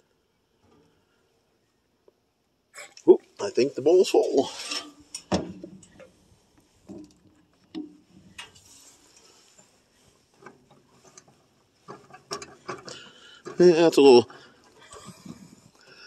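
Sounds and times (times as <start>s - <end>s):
light clicks and knocks of handling: 4.3s - 16.0s.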